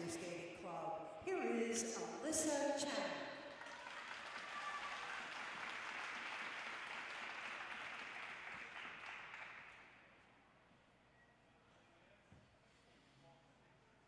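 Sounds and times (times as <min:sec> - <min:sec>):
audience applause: 0:03.5 - 0:09.8.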